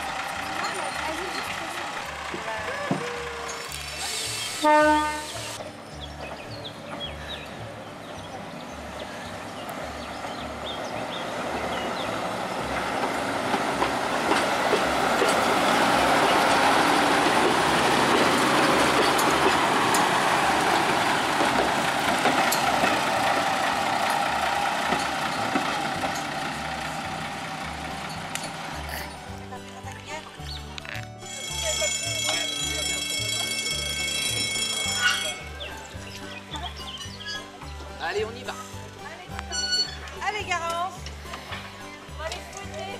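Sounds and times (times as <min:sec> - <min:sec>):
diesel railcar rumbling past: 0:00.0 - 0:42.9
wheels clicking over rail: 0:09.6 - 0:29.3.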